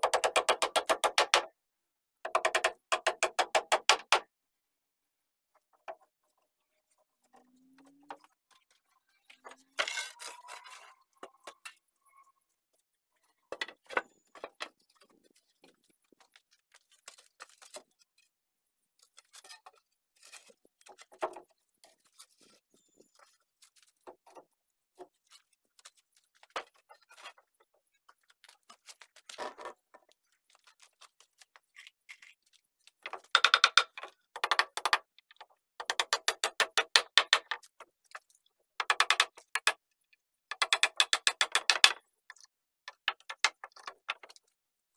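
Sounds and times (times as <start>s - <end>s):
wooden boards knocking and clattering: 0.0s - 1.5s, 9.8s - 10.8s, 33.0s - 37.7s, 38.8s - 39.8s, 40.5s - 42.0s.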